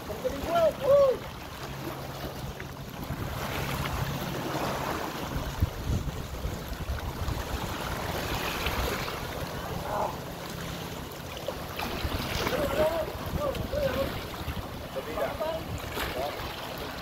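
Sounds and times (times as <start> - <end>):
wind on microphone: 2.9 - 10.2, 11.8 - 17.0
sea water splashing on rocks: 11.4 - 17.0.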